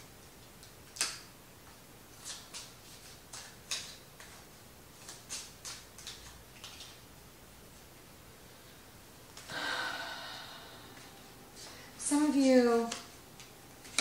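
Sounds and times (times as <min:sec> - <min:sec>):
cards snapping and tapping: 0:00.6 - 0:01.3, 0:02.2 - 0:04.4, 0:05.0 - 0:07.0.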